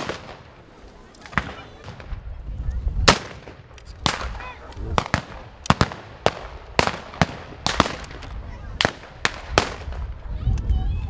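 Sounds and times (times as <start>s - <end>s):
rifle shots: 5.0s - 10.0s.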